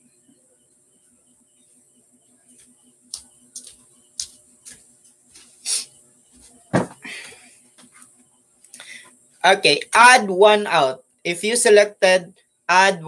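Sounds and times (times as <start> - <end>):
heavy thump: 6.7 - 7.1.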